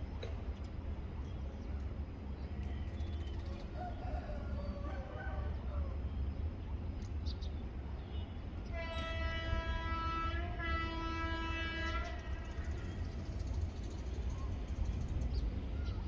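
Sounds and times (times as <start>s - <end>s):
vehicle horn blast: 8.7s - 12.5s.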